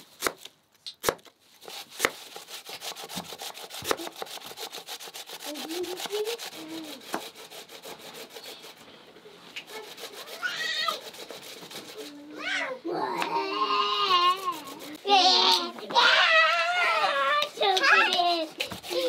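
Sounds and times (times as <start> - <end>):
potato grating rasps: 0.0 - 12.5, 13.2 - 19.0
blade chopping onto wooden board: 3.0 - 4.4.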